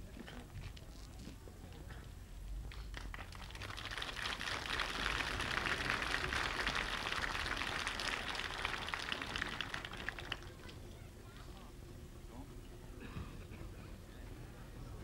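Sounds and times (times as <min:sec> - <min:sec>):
crowd applauding: 0:02.9 - 0:10.7.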